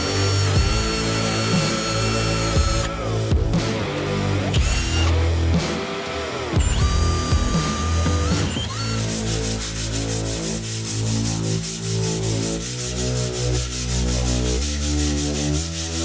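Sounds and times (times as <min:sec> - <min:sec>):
wood being sanded: 0:00.0 - 0:02.8, 0:06.9 - 0:16.0.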